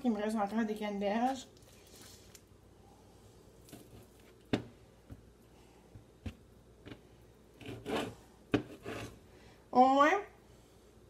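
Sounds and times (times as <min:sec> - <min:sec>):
food rustling: 0:00.4 - 0:02.4.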